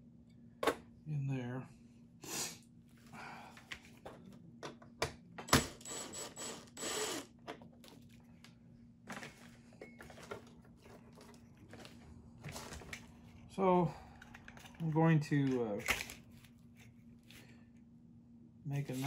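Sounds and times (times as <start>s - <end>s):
cordless drill driving screw: 5.6s - 7.3s.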